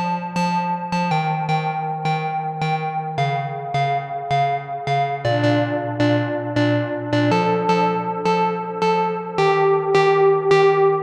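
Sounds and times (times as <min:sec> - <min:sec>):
synthesizer sequenced pattern: 0:00.0 - 0:11.0.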